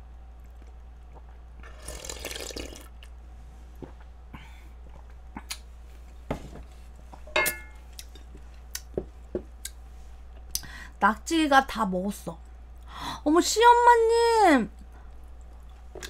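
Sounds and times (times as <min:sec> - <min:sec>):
person slurping soup: 0:01.6 - 0:02.9.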